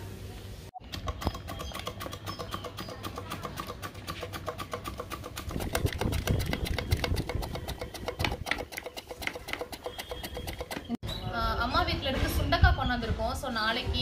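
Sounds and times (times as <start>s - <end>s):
cassava scraping over metal slicer: 1.2s - 11.0s.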